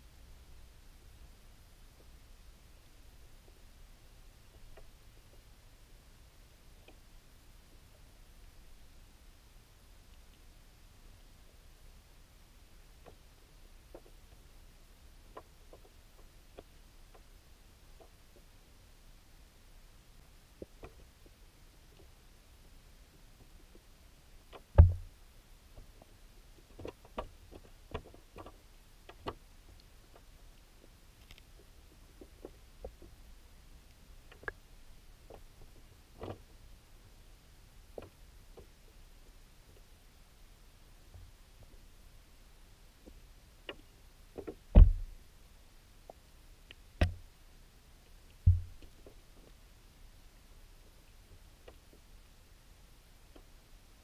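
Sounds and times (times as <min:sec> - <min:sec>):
underwater clicks and knocks: 0:24.5 - 0:25.1, 0:43.7 - 0:45.2, 0:47.0 - 0:47.2, 0:48.4 - 0:49.5
dull underwater thump: 0:24.8 - 0:25.1, 0:44.7 - 0:45.2, 0:48.5 - 0:48.8
faint clicks: 0:25.8 - 0:33.2, 0:33.8 - 0:34.6.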